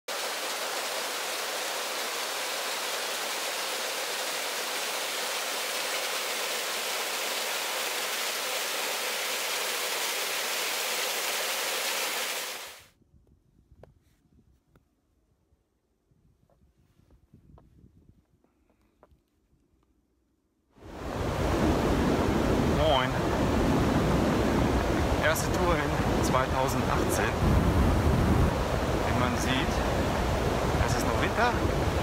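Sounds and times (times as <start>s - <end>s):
flowing water rushing: 0.1s - 12.9s, 20.8s - 32.0s.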